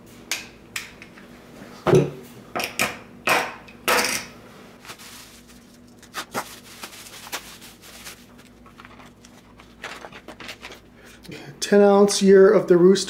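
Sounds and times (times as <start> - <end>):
bubble wrap rustling and crinkling: 4.8 - 10.9.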